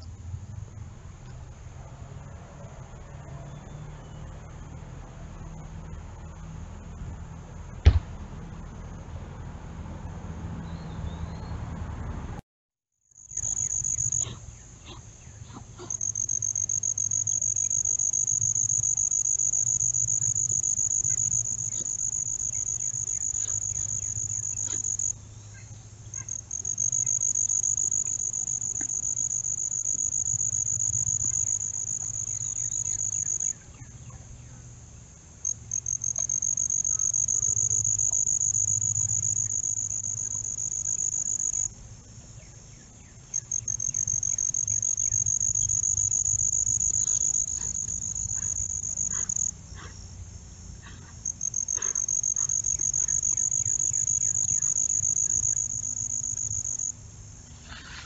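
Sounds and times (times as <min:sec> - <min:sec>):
insect trilling: 0:13.2 - 0:15.0, 0:15.8 - 0:33.6, 0:35.4 - 0:41.8, 0:43.3 - 0:50.0, 0:50.8 - 0:57.0.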